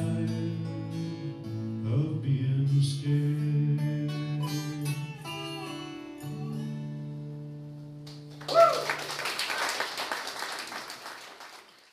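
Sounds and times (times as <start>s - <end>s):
acoustic guitar and dobro: 0.0s - 8.4s
audience applause: 8.3s - 11.9s
audience cheering: 8.4s - 11.9s.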